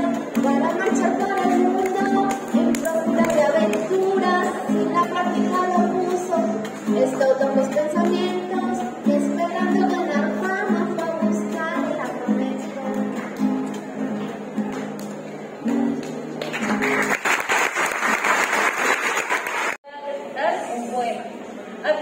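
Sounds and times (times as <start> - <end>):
acoustic guitar playing: 0.0 - 17.1
audience applause: 16.4 - 19.8.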